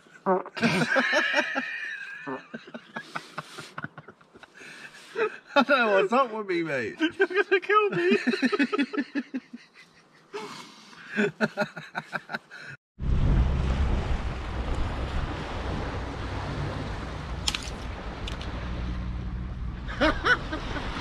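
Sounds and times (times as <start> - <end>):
waves breaking on beach: 13.4 - 21.0.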